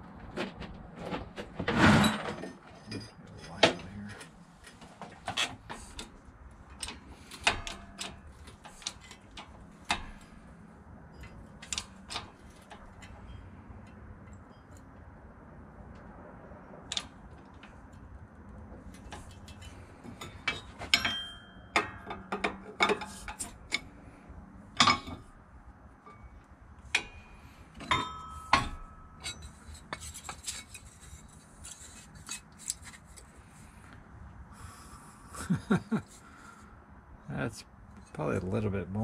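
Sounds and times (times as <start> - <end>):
steel parts clanking in press: 6.8 - 10.4, 19.0 - 23.9, 24.7 - 25.3, 26.0 - 31.2.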